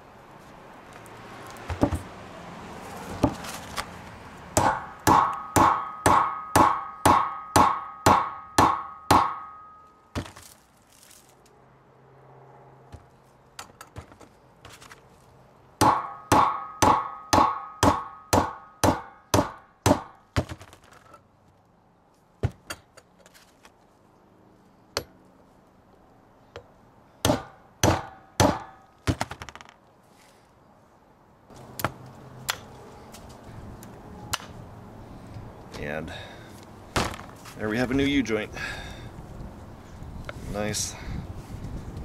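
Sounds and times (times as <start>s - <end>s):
hammer striking steel: 4.6s - 10.0s, 15.8s - 20.2s, 27.2s - 28.8s.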